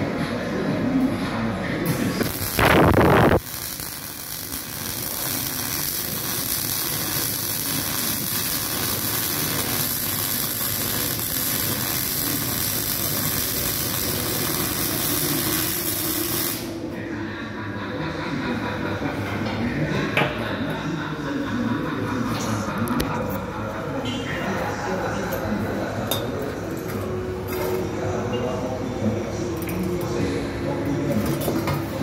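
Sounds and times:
welding arc hissing: 1.9 - 16.8.

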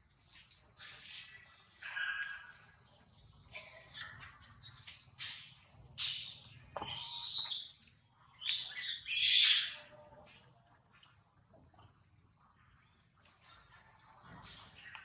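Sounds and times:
insect drone: 0.0 - 9.3
baby monkey screaming: 6.8 - 7.7, 8.5 - 9.8.

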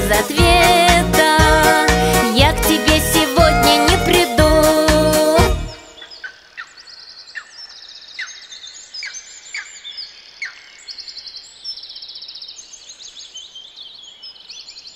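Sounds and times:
songbirds singing: 5.7 - 14.9.

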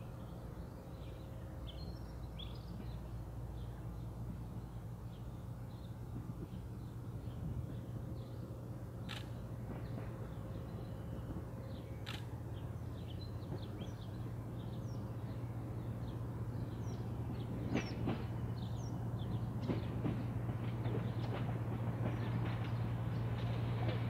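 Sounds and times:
diesel rail motor humming: 0.0 - 24.0.

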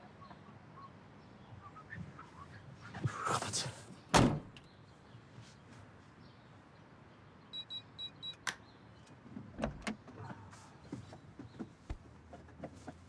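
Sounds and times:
lock releasing click: 4.1 - 4.6.

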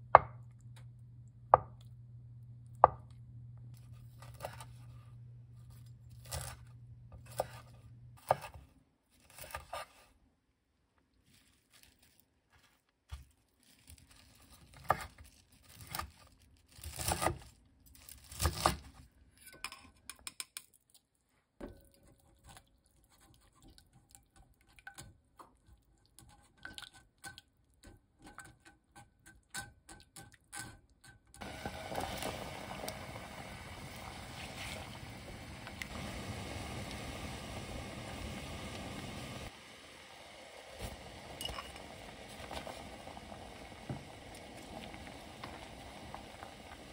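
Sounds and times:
broth boiling in pot: 0.0 - 8.6, 30.5 - 46.9.

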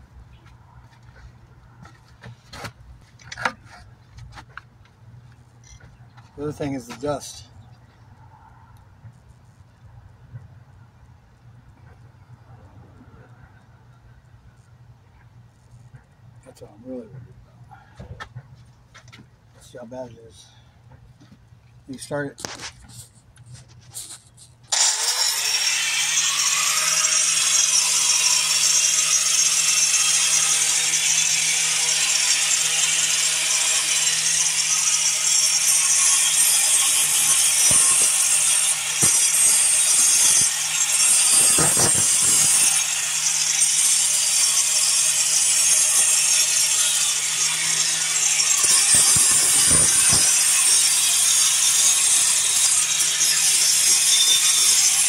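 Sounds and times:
angle grinder grinding brick: 23.8 - 55.0.

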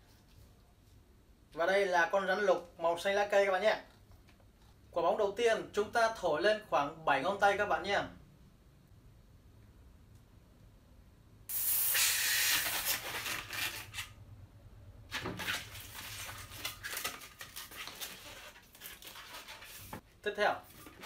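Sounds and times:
air hissing from pump: 11.5 - 12.9
latex balloon squeaking: 11.8 - 14.0.

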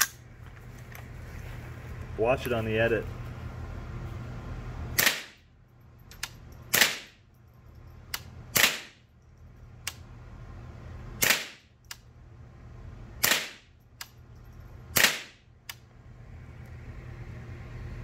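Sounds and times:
low steady hum: 0.0 - 18.0
sharp clicks: 9.8 - 10.1.

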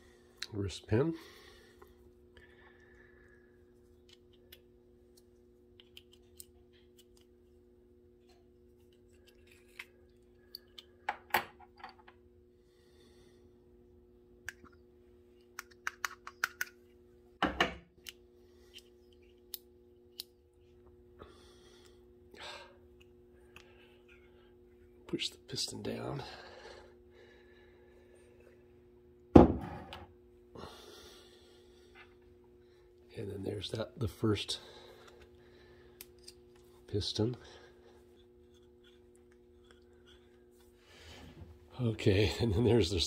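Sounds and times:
steady low hum: 0.0 - 43.0
knocks on workbench: 29.4 - 29.8.

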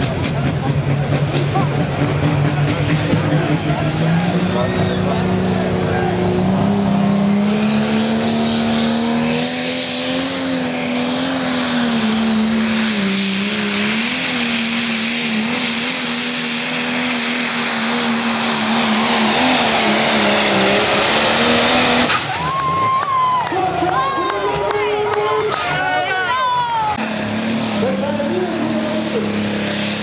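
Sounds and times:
diesel engine under heavy load: 0.0 - 30.0.

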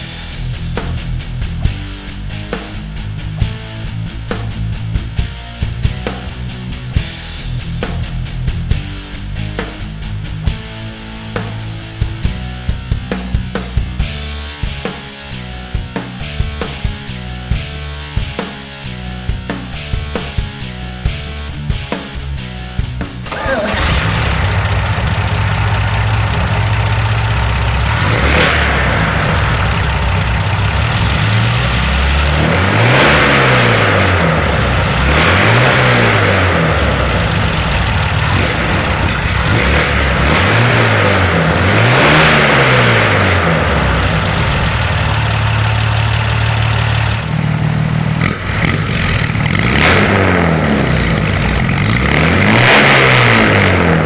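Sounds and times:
truck engine idling: 23.2 - 49.7
engine revving: 23.2 - 54.0.

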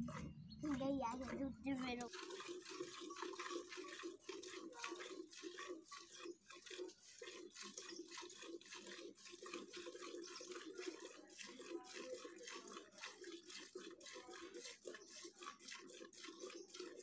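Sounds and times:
milk squirting into bucket: 0.1 - 17.0.

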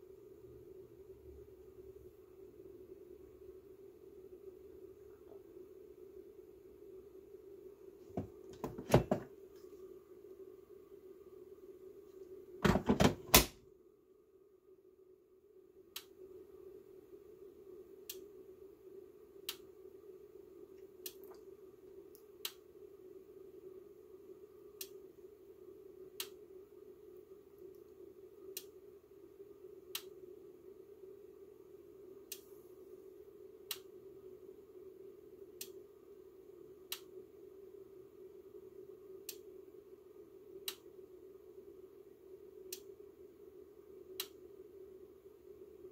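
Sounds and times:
steady low hum: 0.0 - 45.9
plastic battery pack clunks and clicks: 8.2 - 9.3, 12.6 - 13.5.

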